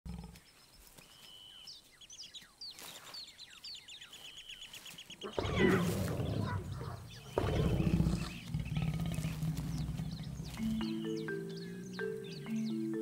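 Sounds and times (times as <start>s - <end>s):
birds whistling: 1.0s - 13.0s
lion growling: 5.2s - 12.0s.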